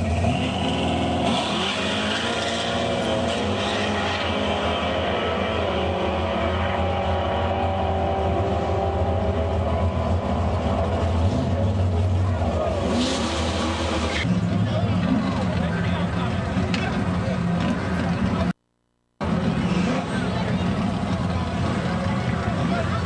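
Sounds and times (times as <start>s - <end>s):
drag car engine at full throttle: 0.0s - 18.6s, 19.2s - 23.0s.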